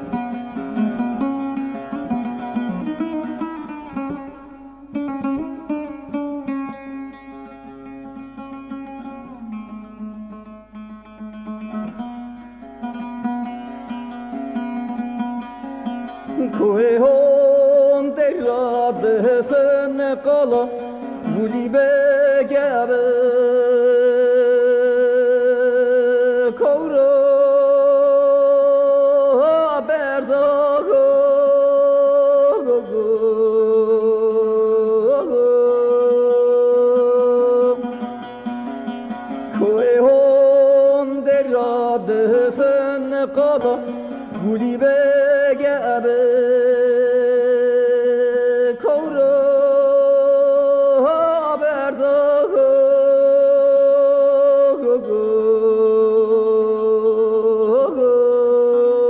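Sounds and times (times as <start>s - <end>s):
faint plucked strings: 0.0s - 57.3s
person singing long wavering notes: 16.2s - 38.4s, 39.5s - 59.0s.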